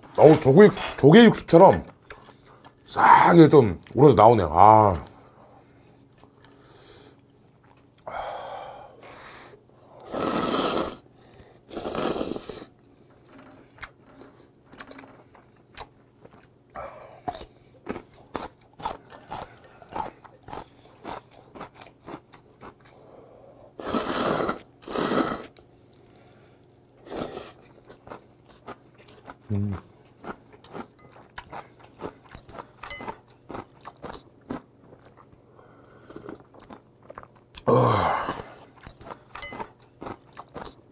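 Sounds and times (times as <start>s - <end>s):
wet chewing and mouth sounds: 1.8s - 3.0s, 5.9s - 8.1s, 11.8s - 23.2s, 24.6s - 40.9s
man slurping noodles: 10.0s - 11.0s, 11.7s - 12.7s, 23.8s - 25.6s, 27.0s - 27.6s.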